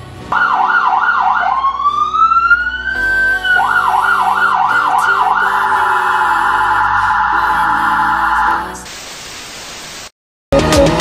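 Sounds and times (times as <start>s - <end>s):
electronic vehicle siren: 0.3s - 8.8s.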